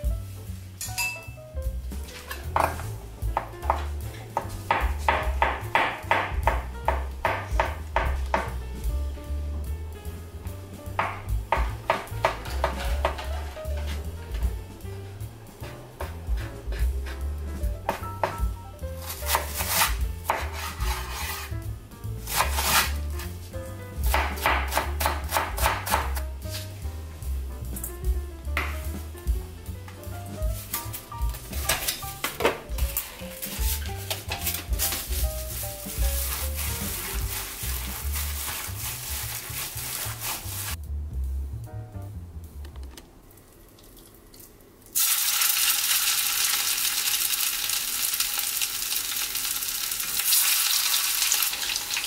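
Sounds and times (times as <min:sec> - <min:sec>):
background music: 0:00.0 - 0:42.9
knife chopping on cutting board: 0:02.4 - 0:08.6, 0:11.0 - 0:14.5, 0:15.6 - 0:21.5, 0:22.2 - 0:23.4, 0:24.0 - 0:26.6, 0:31.3 - 0:38.9
knife slicing on cutting board: 0:19.0 - 0:21.5, 0:22.3 - 0:23.4, 0:32.9 - 0:40.8.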